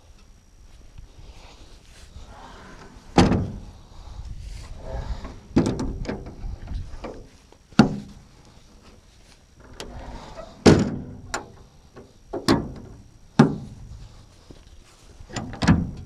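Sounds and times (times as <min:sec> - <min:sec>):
metal truck gate clanking shut: 0:09.6 - 0:11.6, 0:15.3 - 0:16.0
latch rattling clicks: 0:15.3 - 0:16.0.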